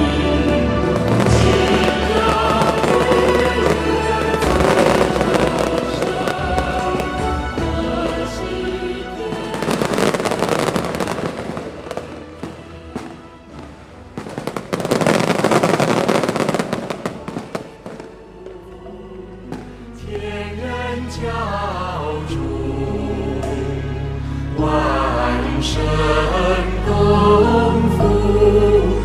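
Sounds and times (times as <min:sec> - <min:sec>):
fireworks crackling: 0:00.0 - 0:18.6
chanted music: 0:00.0 - 0:29.0
music: 0:00.0 - 0:29.0.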